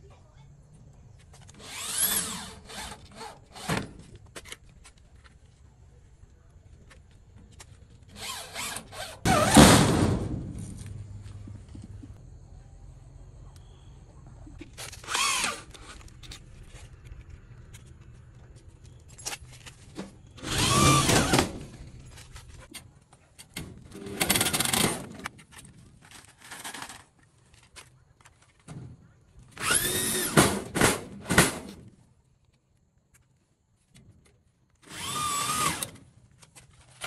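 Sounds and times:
electric drill whining: 0:01.5 - 0:03.7, 0:08.2 - 0:09.3, 0:15.0 - 0:15.7, 0:20.4 - 0:21.5, 0:29.6 - 0:30.4, 0:34.9 - 0:36.0.

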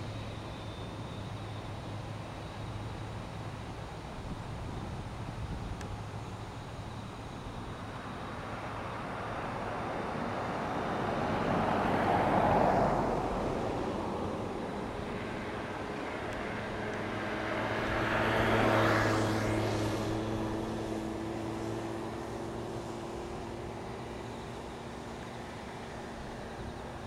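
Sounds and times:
distant jet engine: 0:00.0 - 0:27.0.

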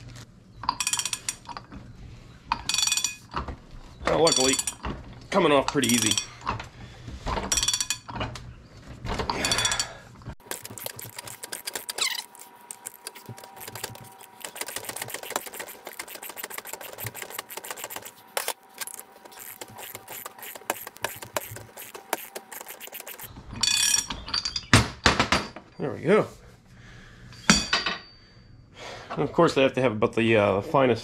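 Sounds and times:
ratchet wrench clicking: 0:10.4 - 0:23.3.

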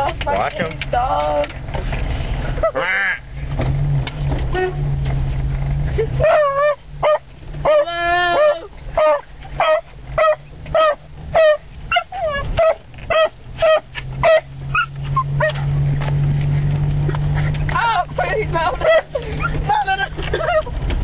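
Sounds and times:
truck engine hum: 0:00.0 - 0:21.0
dog barking: 0:06.2 - 0:07.8, 0:08.4 - 0:15.6.

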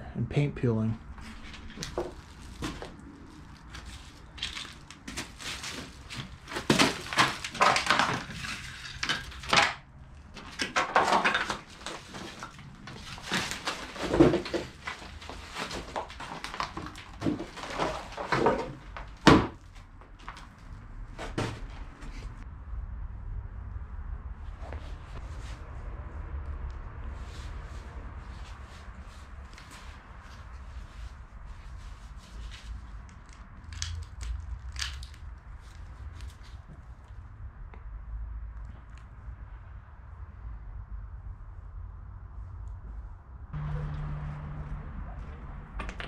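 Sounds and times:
crunching and scuffing footsteps: 0:01.1 - 0:22.4.

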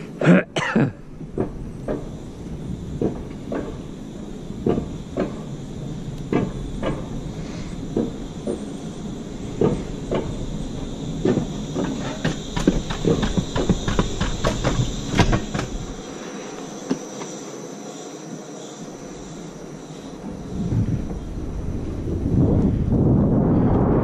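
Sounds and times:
coaster sled rolling rumble: 0:00.0 - 0:16.4, 0:18.3 - 0:24.0
wheels clacking on track: 0:01.0 - 0:16.1.

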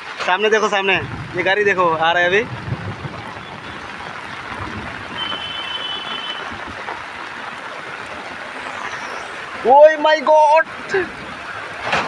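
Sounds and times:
car wading through water: 0:00.0 - 0:12.0
rain on flooded street: 0:00.0 - 0:12.0.

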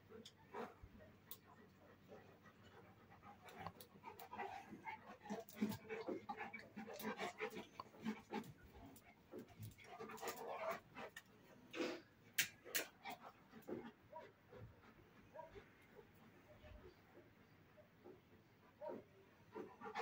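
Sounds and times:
dogs chewing with mouth clicks: 0:00.0 - 0:14.0
dogs panting: 0:00.0 - 0:20.0.

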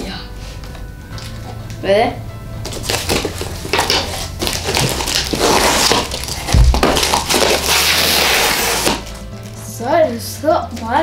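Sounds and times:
cardboard ripping and crumpling: 0:02.7 - 0:09.2
heavy thump: 0:06.5 - 0:07.1.

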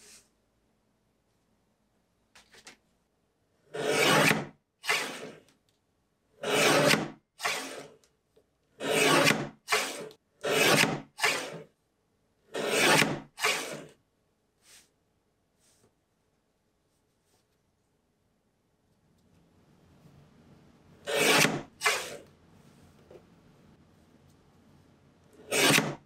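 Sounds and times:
paper trimmer shearing paper: 0:06.4 - 0:07.9, 0:08.8 - 0:11.6, 0:12.6 - 0:13.9, 0:25.4 - 0:26.0.

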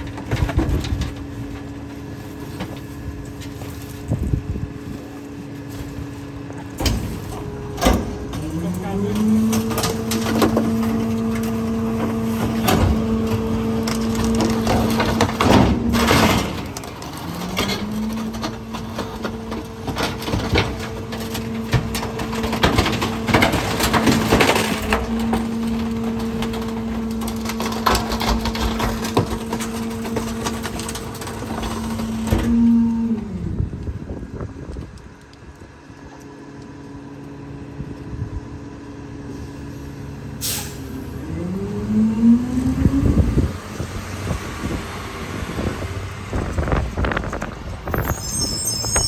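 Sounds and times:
debris cracking and crunching: 0:00.0 - 0:38.1
garbage truck engine droning: 0:00.0 - 0:49.0.

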